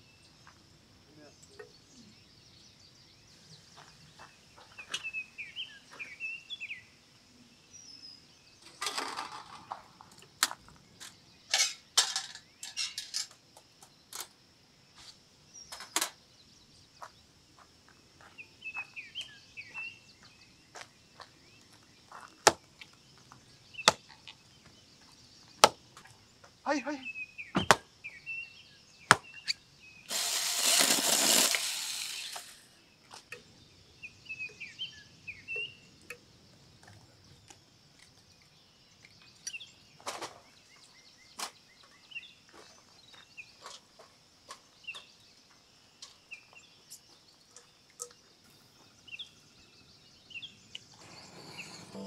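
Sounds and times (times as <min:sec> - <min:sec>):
birds chirping: 0:00.0 - 0:52.0.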